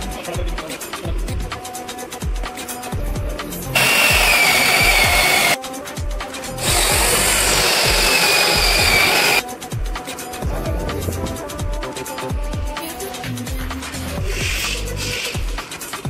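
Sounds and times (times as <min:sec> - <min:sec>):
background music beat: 0:00.0 - 0:16.0
electric power tool whining: 0:03.8 - 0:05.6, 0:06.6 - 0:09.4.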